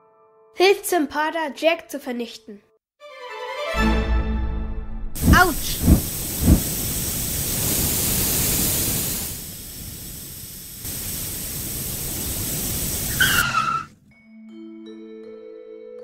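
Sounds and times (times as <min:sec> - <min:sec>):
cartoon rushing noise: 0:05.2 - 0:06.7, 0:13.1 - 0:13.9
falling skid squeal: 0:13.1 - 0:14.0.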